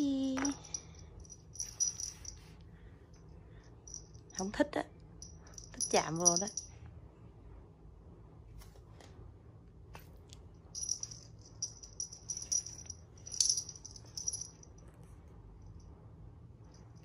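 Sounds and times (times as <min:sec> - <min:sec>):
small bell jingling: 0:00.2 - 0:02.5, 0:03.8 - 0:04.5, 0:05.2 - 0:06.8, 0:10.8 - 0:14.8.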